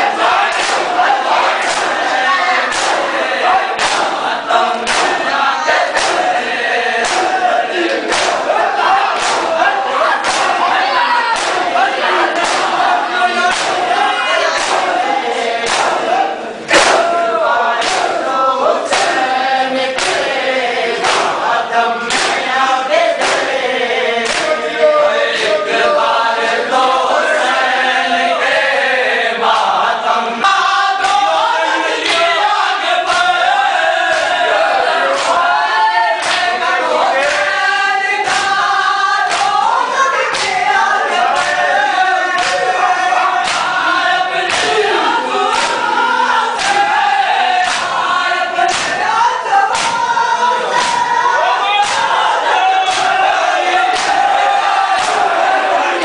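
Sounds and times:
men chanting in unison: 0.0s - 56.0s
hands slapping chests: 0.5s - 15.0s, 15.6s - 18.2s, 18.9s - 19.3s, 20.0s - 20.4s, 21.0s - 21.5s, 22.1s - 22.5s, 23.1s - 23.6s, 24.2s - 24.6s, 31.0s - 31.3s, 32.0s - 32.4s, 33.1s - 33.5s, 34.1s - 34.4s, 35.1s - 35.6s, 36.2s - 36.6s, 37.2s - 41.7s, 42.3s - 42.8s, 43.4s - 43.8s, 44.5s - 44.9s, 45.5s - 45.9s, 46.5s - 47.0s, 47.6s - 48.0s, 48.6s - 50.1s, 50.7s - 51.1s, 51.8s - 56.0s.

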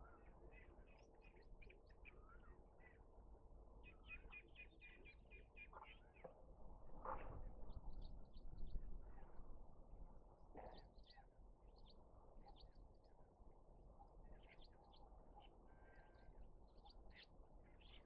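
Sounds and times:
small birds chirping: 14.0s - 18.0s.

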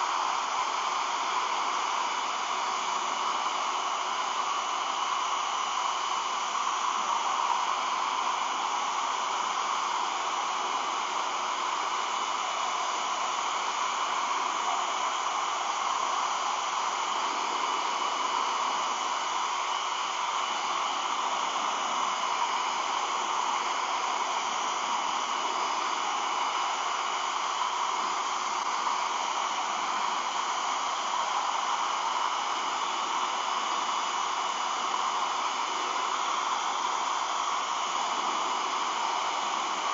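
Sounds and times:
hair dryer running: 0.0s - 39.9s.

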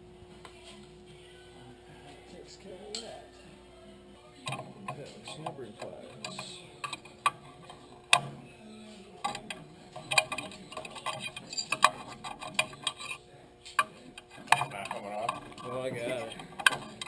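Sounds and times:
hand tools clicking on metal: 9.2s - 17.0s.

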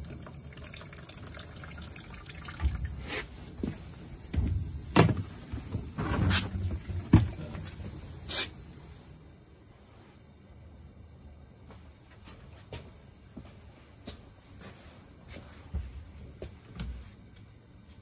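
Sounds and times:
liquid trickling into bucket: 0.0s - 3.3s
knocks and thumps of plastic bucket: 4.4s - 7.7s.

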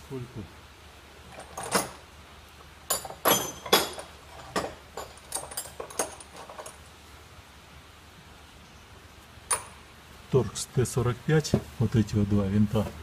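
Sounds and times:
faint handling clicks and rustles: 1.2s - 7.0s.

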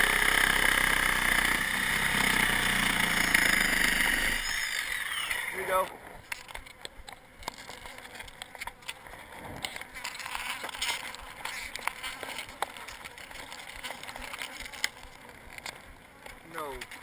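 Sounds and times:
wooden pieces clicking and scraping: 4.4s - 17.0s.

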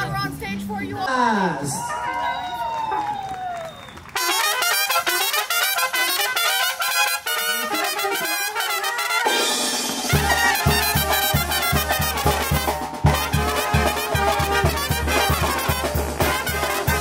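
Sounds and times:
brass band playing: 4.1s - 17.0s
low bass beat: 10.2s - 17.0s.

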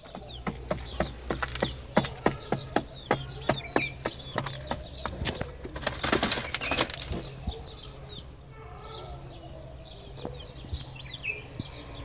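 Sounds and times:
pigeon wings flapping in a box: 5.2s - 7.2s.

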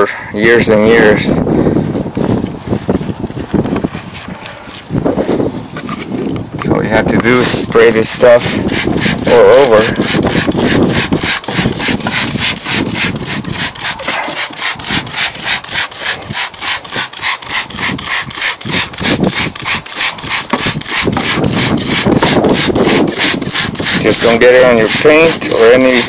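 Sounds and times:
spray bottle hissing: 7.9s - 26.0s.

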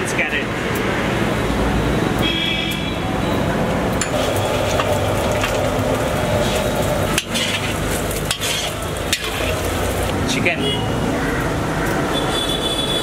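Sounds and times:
spatula scraping wok: 4.0s - 10.1s
vegetables sizzling in oil: 4.0s - 10.1s.

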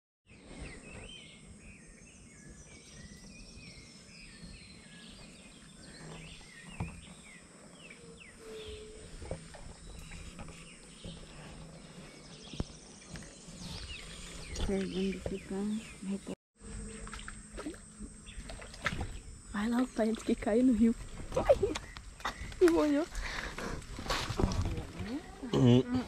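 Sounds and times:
birds chirping: 0.3s - 26.0s.

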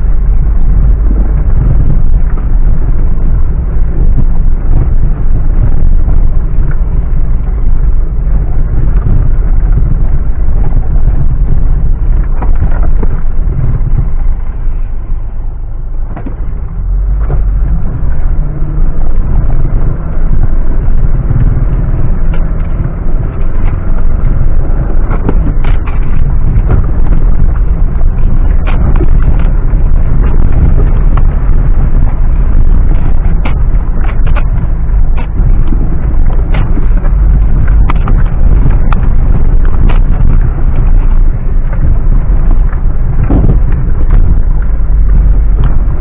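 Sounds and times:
heavy engine rumble off-road: 0.0s - 46.0s
vehicle body knocks and rattles: 16.0s - 46.0s.

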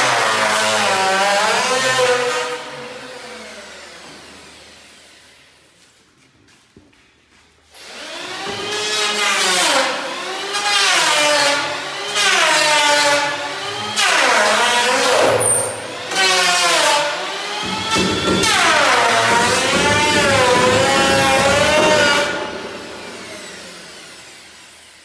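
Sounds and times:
electric power tool cutting wood: 7.8s - 25.0s.

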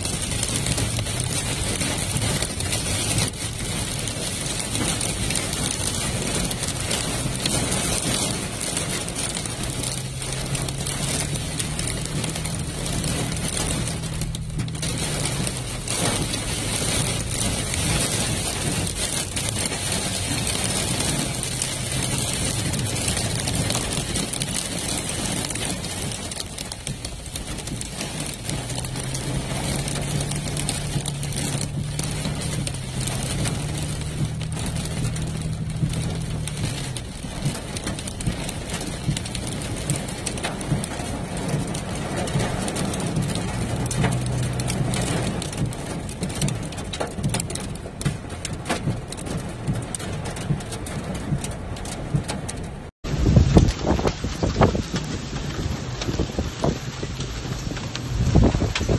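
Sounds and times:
engine hum: 0.0s - 58.9s
heavy rain on vehicle roof: 0.0s - 58.9s.

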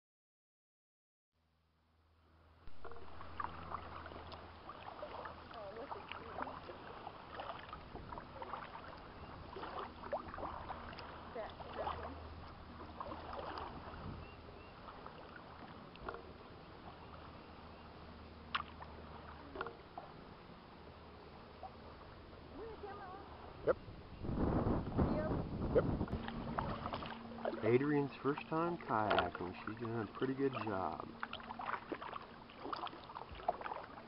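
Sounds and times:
steady low hum: 1.5s - 34.0s
water drips: 2.7s - 14.0s, 26.1s - 34.0s
paddle splashing in water: 2.7s - 20.4s, 21.5s - 23.7s, 24.4s - 34.0s.

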